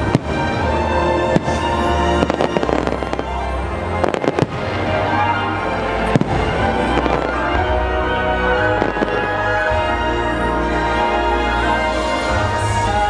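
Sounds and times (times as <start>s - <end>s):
fireworks bursting in bangs: 0.0s - 0.7s, 1.3s - 3.4s, 4.0s - 5.0s, 6.1s - 7.6s
music over loudspeakers: 0.0s - 13.0s.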